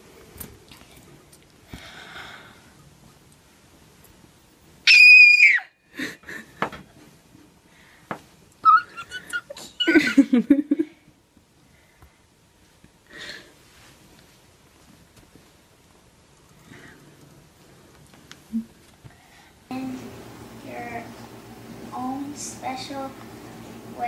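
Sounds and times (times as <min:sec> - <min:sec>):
girl squealing: 0:04.9 - 0:05.8, 0:08.6 - 0:10.2.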